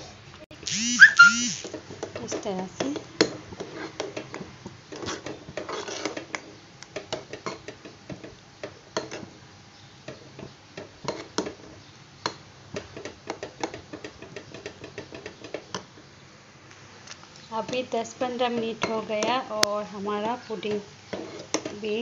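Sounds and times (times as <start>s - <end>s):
spoon stirring thick pudding: 1.7s - 9.3s, 10.0s - 15.9s, 20.5s - 21.9s.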